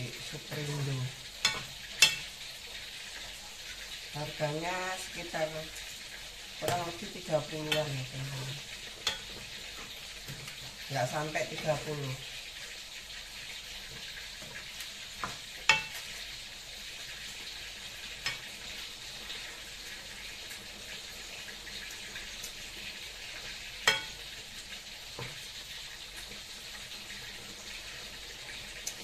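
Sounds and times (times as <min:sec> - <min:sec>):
food sizzling in a pan: 0:00.0 - 0:29.0
metal ladle clinking on pan: 0:23.8 - 0:24.2.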